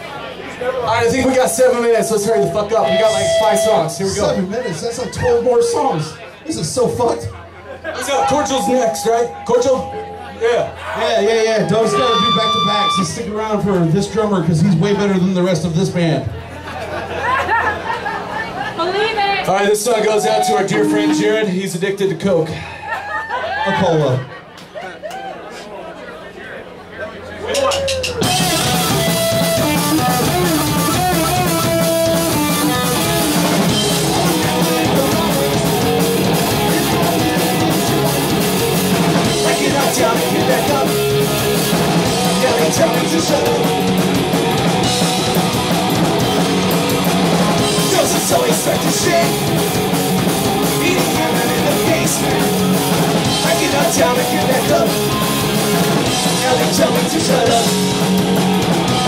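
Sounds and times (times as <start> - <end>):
punk rock band playing: 0.9 - 4.5, 7.9 - 14.0, 19.8 - 21.8, 28.0 - 59.0.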